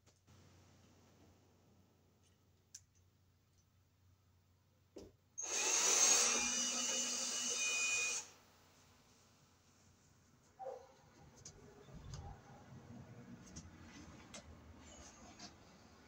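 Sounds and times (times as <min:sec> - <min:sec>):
drill motor whine: 0:05.4 - 0:08.4.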